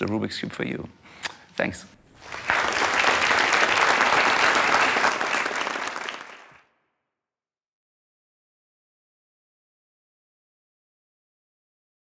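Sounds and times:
audience applauding: 2.2 - 6.7.

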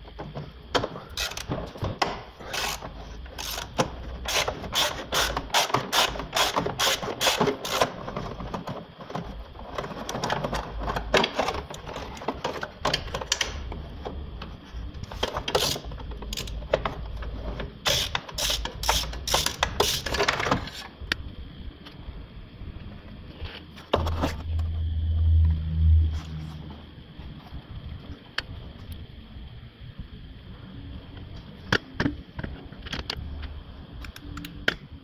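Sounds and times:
hand ratchet clicking: 2.5 - 7.9, 17.8 - 20.2.

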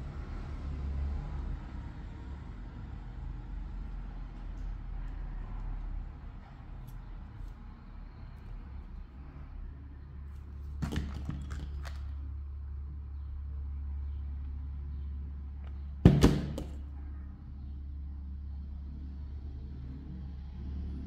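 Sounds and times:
loud knock with rattle: 10.8 - 12.0, 16.0 - 16.8.

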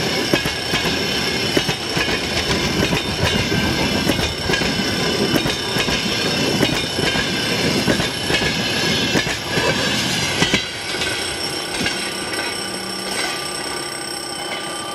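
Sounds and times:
train wheels clacking over rail joints: 0.0 - 13.4
level crossing bell ringing: 9.8 - 14.9.

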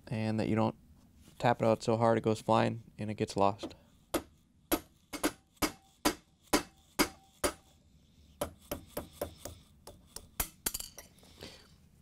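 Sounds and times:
hammer tapping metal punch: 3.6 - 7.7.

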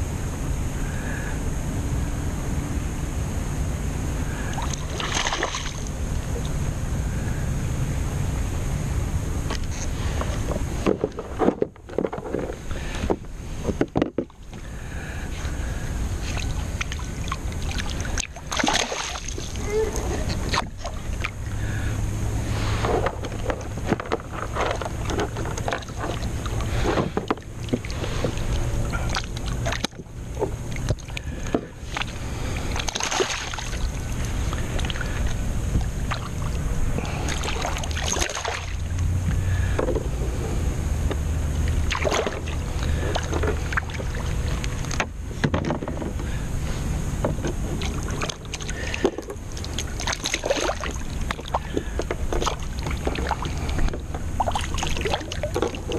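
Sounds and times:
wind rumble on microphone: 0.0 - 55.9
water lapping around kayak: 3.8 - 55.9
fish splashing: 4.3 - 7.4, 14.3 - 39.8, 41.2 - 45.0, 47.7 - 55.9.

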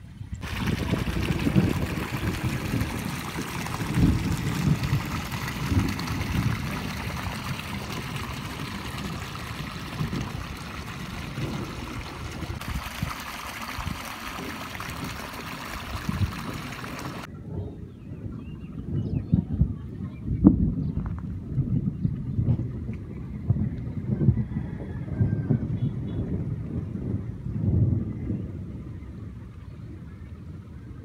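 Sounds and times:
flowing water: 0.0 - 17.3
low rumbles: 0.0 - 17.3.

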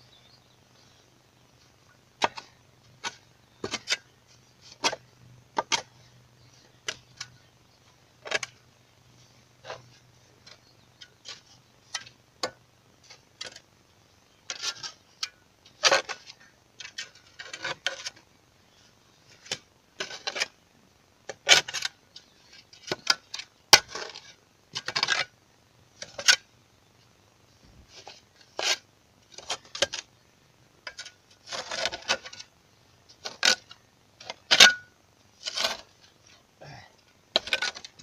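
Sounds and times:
shovel scraping through soil: 30.9 - 32.5.

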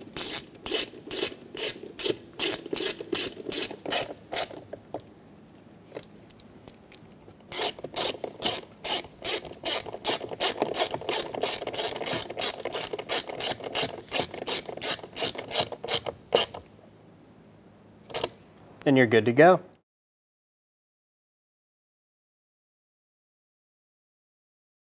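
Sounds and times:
hand ratchet clicking: 7.5 - 16.6.

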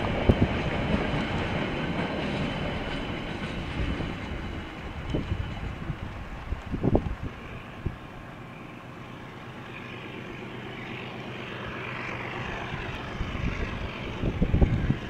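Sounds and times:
wind buffeting microphone: 0.0 - 8.3, 12.2 - 15.0
distant engine drone: 0.0 - 15.0.

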